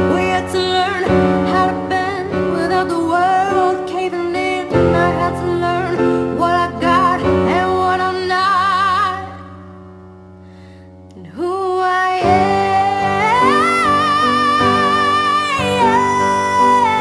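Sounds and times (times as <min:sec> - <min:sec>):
person singing with vibrato: 0:00.0 - 0:09.8, 0:11.1 - 0:17.0.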